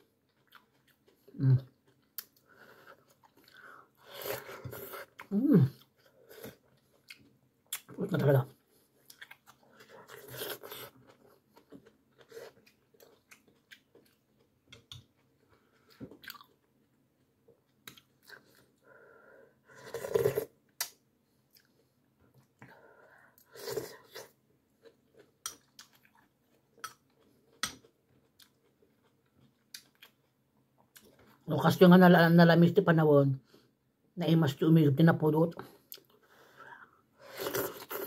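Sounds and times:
person chewing crunchy food: 0.0s - 7.9s, 8.8s - 16.8s, 23.5s - 31.4s.

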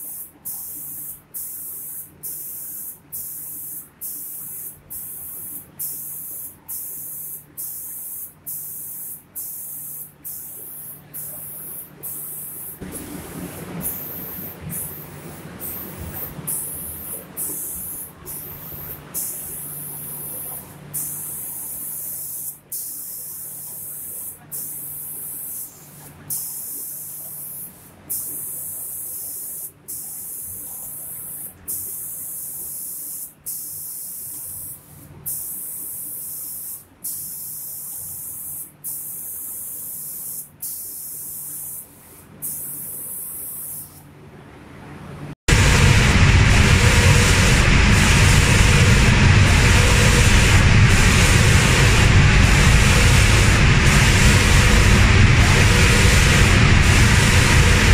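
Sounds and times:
spray guns hissing: 0.0s - 44.0s, 46.6s - 57.9s
low steady hum: 10.6s - 21.0s, 44.3s - 57.9s
loud rushing noise: 45.5s - 57.9s.

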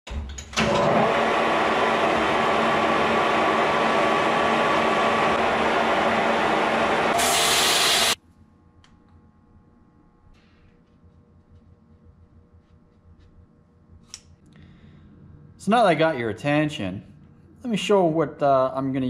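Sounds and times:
metal lathe running: 0.6s - 8.2s.

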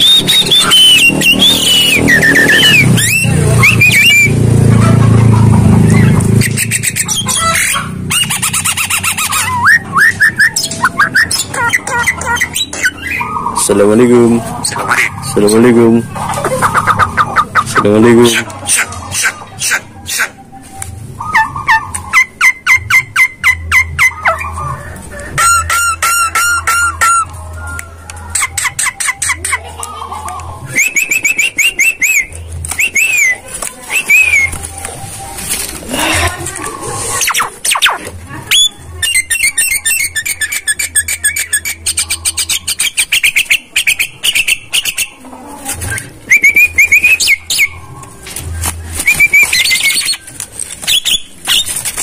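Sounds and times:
bird rising whistled notes: 0.0s - 4.4s
bird whistled calls: 0.0s - 4.5s, 5.9s - 13.8s, 30.7s - 35.3s, 37.2s - 45.2s, 45.9s - 47.8s, 49.0s - 52.0s.

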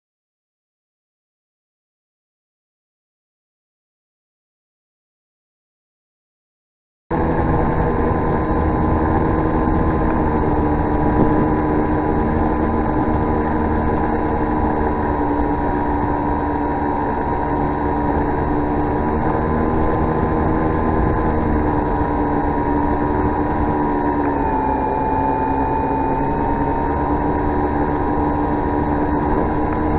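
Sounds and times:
motor and propeller whine: 7.1s - 29.9s
wind noise: 7.1s - 29.9s.

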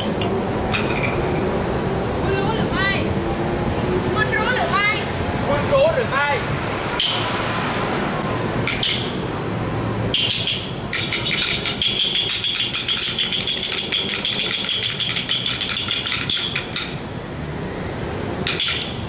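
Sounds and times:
rapid rattling clicks: 10.2s - 17.0s.

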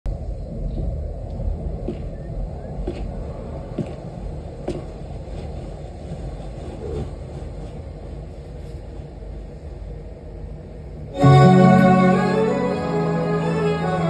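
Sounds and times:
low rumbling drone: 0.1s - 4.6s.

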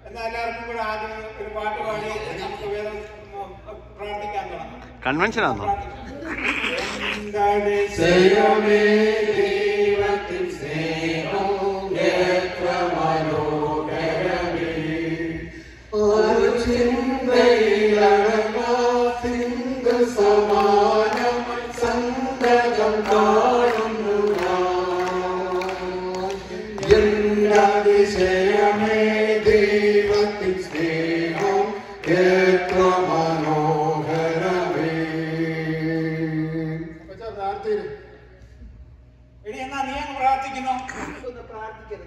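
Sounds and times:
group singing a hymn: 7.0s - 37.1s.

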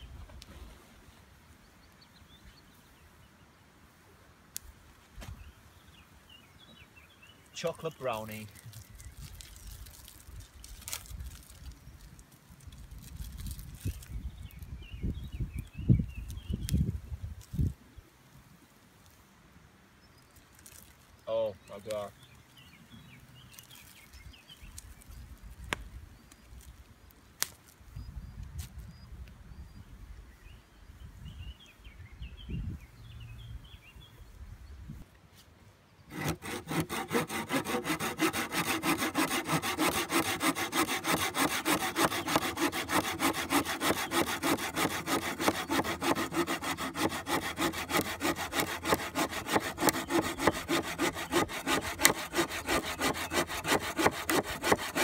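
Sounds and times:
hand saw cutting a branch: 36.1s - 55.0s.

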